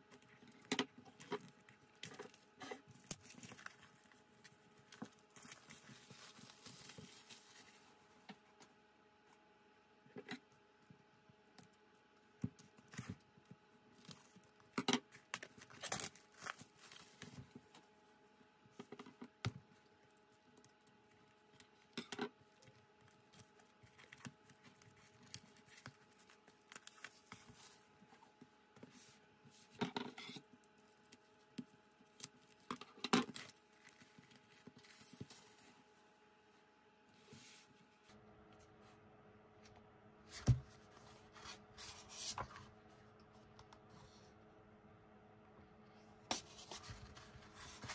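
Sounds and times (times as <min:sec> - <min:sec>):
plastic shrink wrap crinkling: 0:00.1 - 0:08.1, 0:13.9 - 0:17.6, 0:30.7 - 0:35.7.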